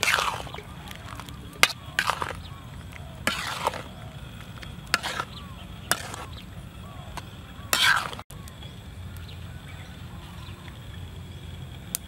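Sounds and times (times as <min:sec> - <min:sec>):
metal spatula scraping a wok: 0:00.0 - 0:02.5, 0:03.2 - 0:06.3, 0:07.7 - 0:08.2.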